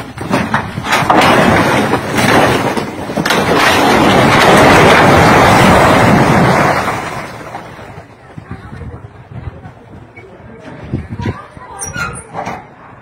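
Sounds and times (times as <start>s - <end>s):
building collapsing rumble: 0.0s - 10.1s.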